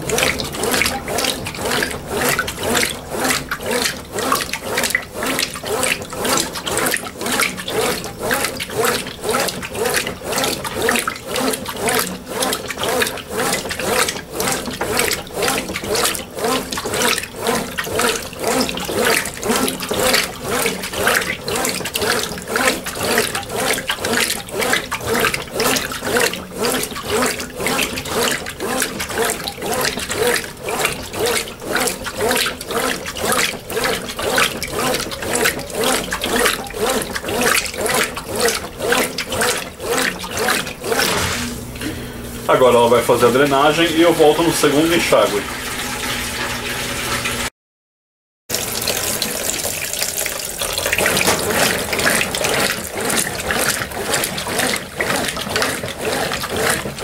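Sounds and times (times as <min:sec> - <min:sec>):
washing machine swishing and sloshing: 0:00.0 - 0:47.5, 0:48.5 - 0:57.0.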